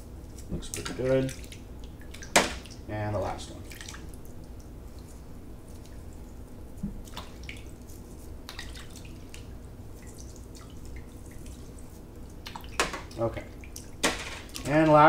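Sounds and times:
water dripping into sink: 12.2s - 14.8s.

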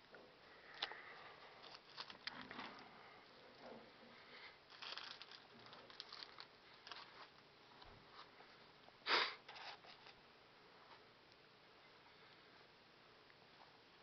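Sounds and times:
wrapping paper rustling: 1.6s - 2.9s, 4.7s - 7.4s.

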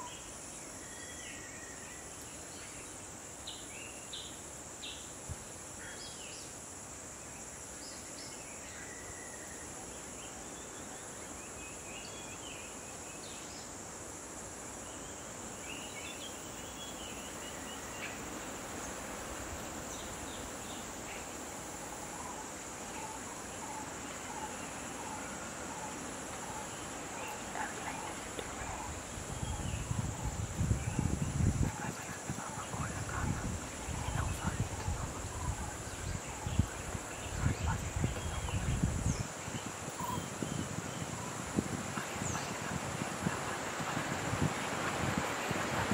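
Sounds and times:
bird chirps: 39.9s - 41.1s.

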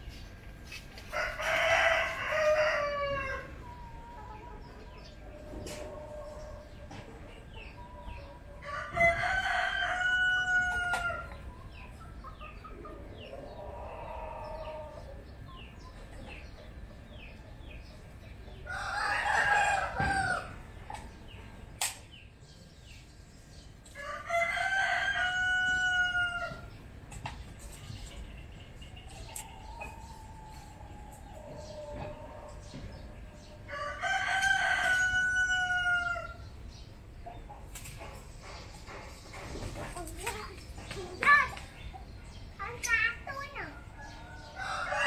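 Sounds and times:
rooster crowing: 1.1s - 3.6s, 8.6s - 11.3s, 24.0s - 26.7s, 33.7s - 36.4s, 44.0s - 45.0s.

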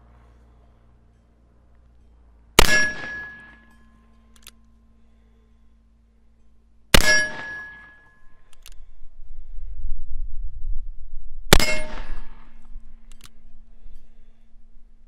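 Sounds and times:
bullet clanging on steel target: 1.9s - 4.9s, 7.0s - 8.7s, 11.5s - 14.2s.

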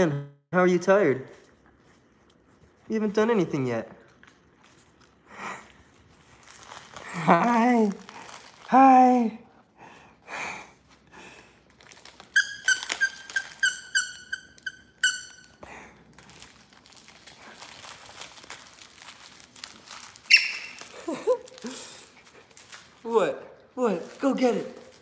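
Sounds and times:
toy squeaks: 12.3s - 15.6s, 20.3s - 20.9s.

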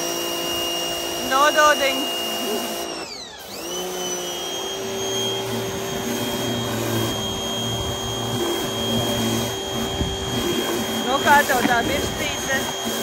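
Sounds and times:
pressure washer whining: 0.0s - 13.0s
water spraying onto concrete: 5.4s - 13.0s.

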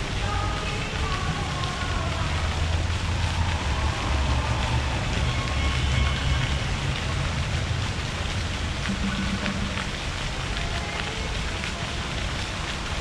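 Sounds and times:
rushing outdoor noise: 0.0s - 13.0s
heavy low rumble: 8.6s - 10.6s.

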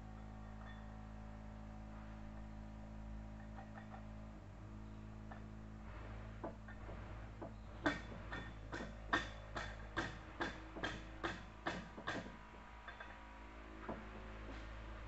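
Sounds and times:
hammer tapping on metal: 7.4s - 13.1s.

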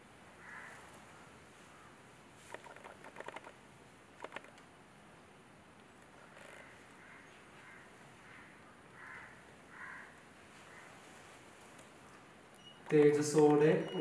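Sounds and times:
faint small clicks: 4.2s - 4.7s.

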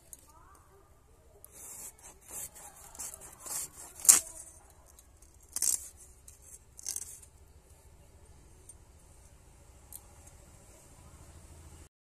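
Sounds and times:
knife scraping fish scales: 1.5s - 4.6s, 5.2s - 7.3s.

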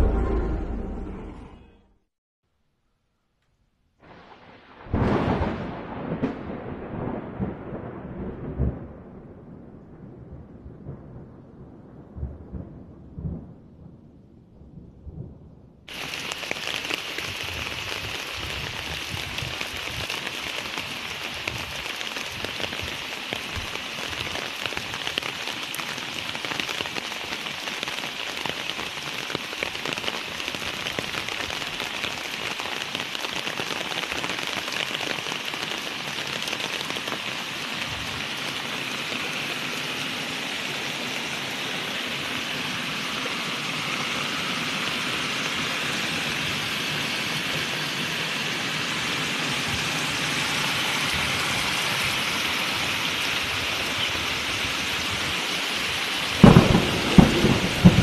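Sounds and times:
low rumbling: 0.0s - 2.0s
heavy rain pouring: 4.1s - 9.9s, 15.9s - 58.0s.

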